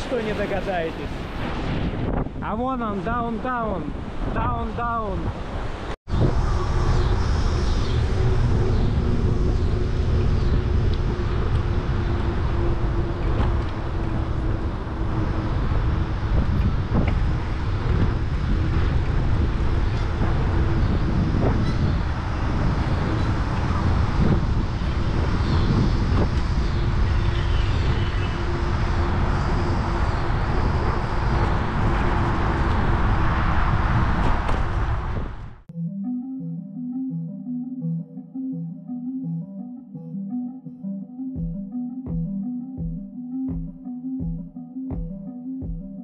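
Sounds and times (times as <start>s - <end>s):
vehicle rumble and hum: 6.1s - 35.6s.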